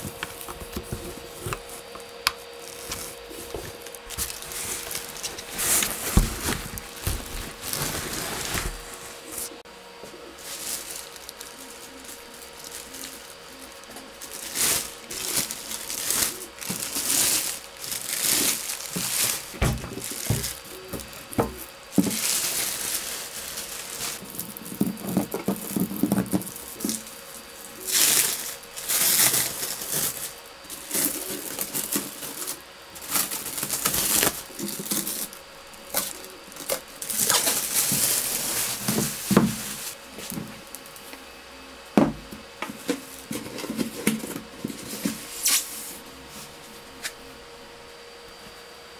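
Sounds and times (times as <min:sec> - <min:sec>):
plastic wrap crinkling and tearing: 0:02.6 - 0:09.6, 0:10.4 - 0:41.1.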